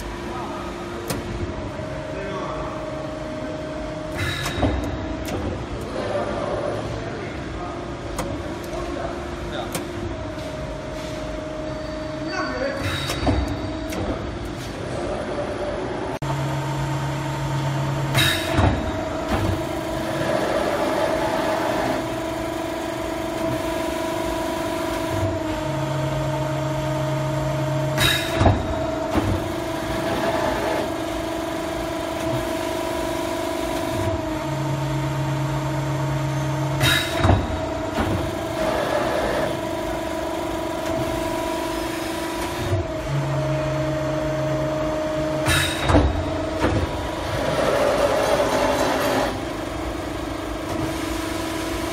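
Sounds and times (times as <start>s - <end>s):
hydraulic hum: 0.0s - 51.9s
sharp clunk of press: 4.1s - 5.6s, 45.4s - 47.0s.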